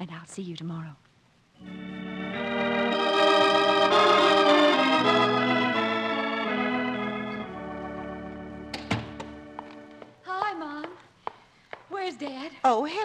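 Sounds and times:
organ chords: 0:01.6 - 0:10.2.

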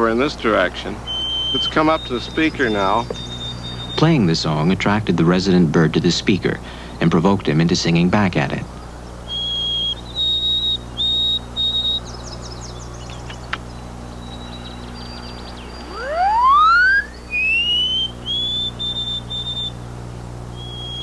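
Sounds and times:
recorded birdsong over loudspeaker: 0:00.0 - 0:21.0
sparrow whistled song: 0:01.0 - 0:04.4, 0:08.7 - 0:19.8, 0:20.5 - 0:21.0
quick falling chirps: 0:15.6 - 0:19.7.

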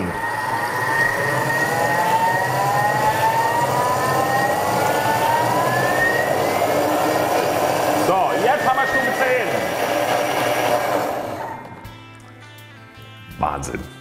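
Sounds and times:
soup churning in mixing bowl: 0:00.0 - 0:11.9
food processor motor whining: 0:00.0 - 0:12.0.

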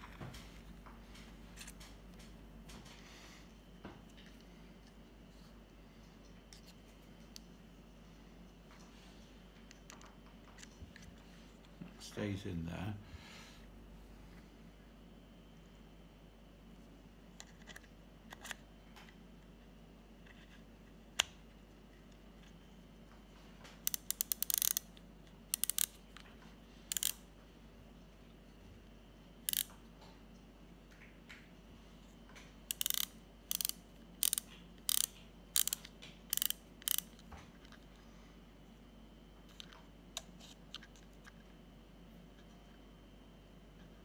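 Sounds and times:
metal parts clicking: 0:23.9 - 0:24.8, 0:25.5 - 0:26.0, 0:26.9 - 0:27.2, 0:29.5 - 0:29.7, 0:32.7 - 0:37.8.

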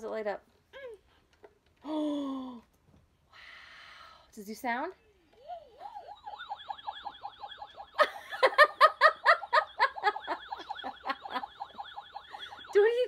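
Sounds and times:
toy spaceship warbling chirp: 0:05.4 - 0:08.1, 0:10.0 - 0:13.0.

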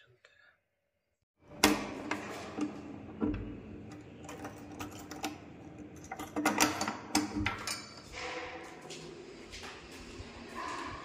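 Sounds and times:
metal bolt clacking and rattling: 0:03.9 - 0:08.6.

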